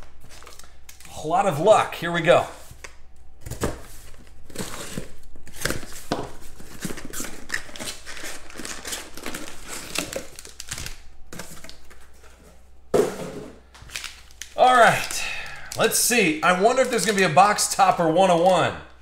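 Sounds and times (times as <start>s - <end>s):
foil packs crinkling: 4.0s - 12.4s, 13.7s - 19.0s
cardboard tearing: 6.6s - 11.8s.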